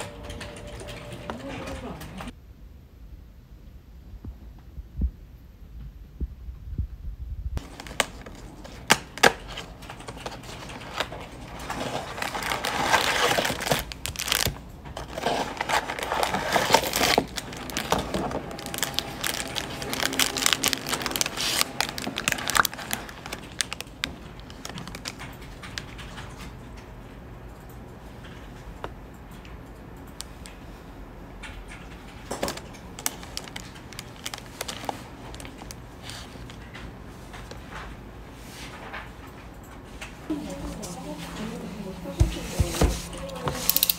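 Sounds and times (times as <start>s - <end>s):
paper and plastic bags rustling: 7.6s - 26.6s, 31.8s - 43.9s.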